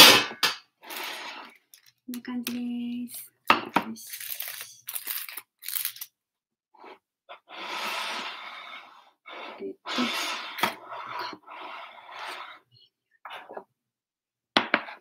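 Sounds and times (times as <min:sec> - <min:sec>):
aluminium foil crinkling: 0:04.0 - 0:06.1.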